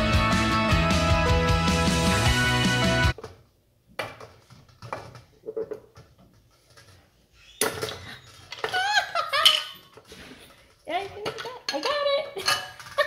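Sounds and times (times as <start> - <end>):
ice and spoon clinking on glass bowls: 11.3 - 13.0.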